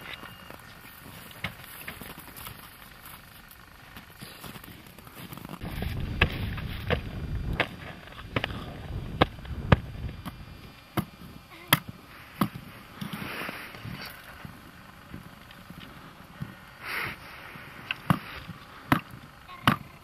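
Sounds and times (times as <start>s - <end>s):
low rumble: 5.6s - 10.8s.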